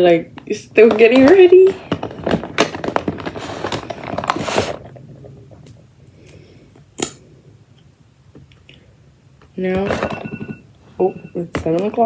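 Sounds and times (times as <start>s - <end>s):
cosmetics clicking and rustling in bag: 0.4s - 5.0s.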